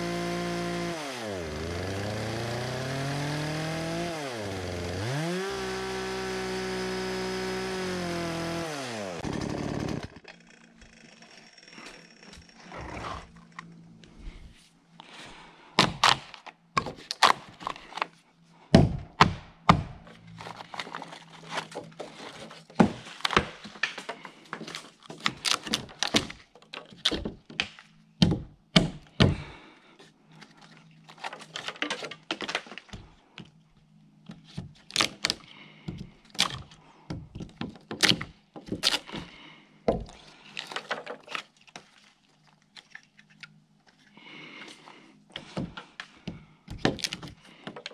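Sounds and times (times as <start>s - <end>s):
hatchet chopping wood: 0.0s - 10.1s, 15.8s - 17.4s, 18.7s - 20.0s, 27.2s - 29.5s, 45.5s - 47.8s.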